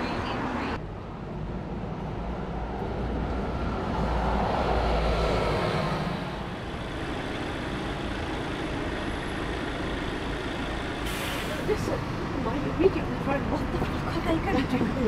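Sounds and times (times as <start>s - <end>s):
vehicle passing: 0.0s - 6.7s
road noise rumble: 0.0s - 15.0s.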